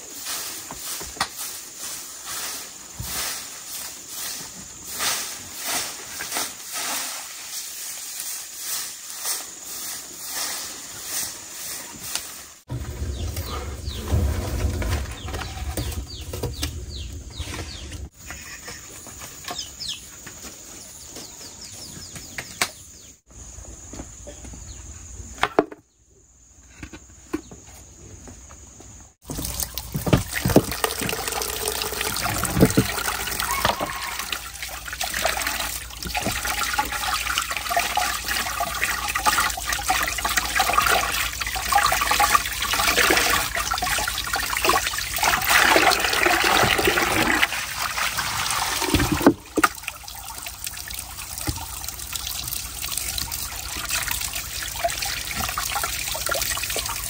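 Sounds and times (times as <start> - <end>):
hands rinsing meat in water: 29.2 - 57.0
water running from a tap: 29.2 - 57.0.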